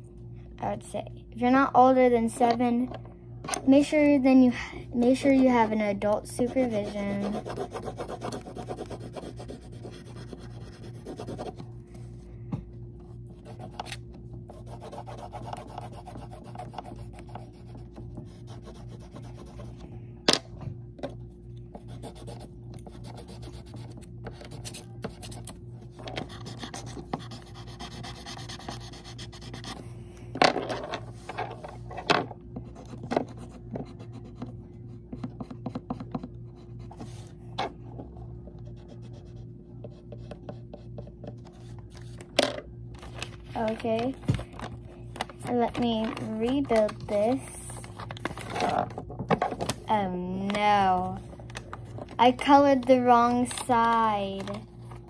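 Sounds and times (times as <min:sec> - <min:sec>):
pen scratching on paper: 0:06.5 - 0:11.6, 0:13.4 - 0:19.7, 0:26.2 - 0:29.8.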